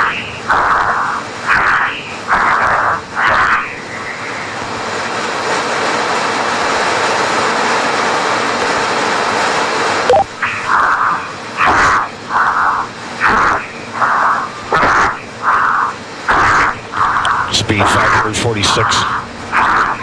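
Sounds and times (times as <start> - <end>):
short beep: 10.1 - 10.3
radio link hiss: 16.5 - 20.0
radio voice: 17.4 - 19.3.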